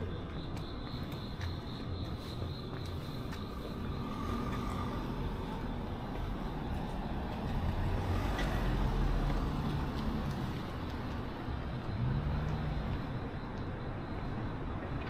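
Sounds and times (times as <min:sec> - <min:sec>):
cars driving past: 0:03.6 - 0:15.0.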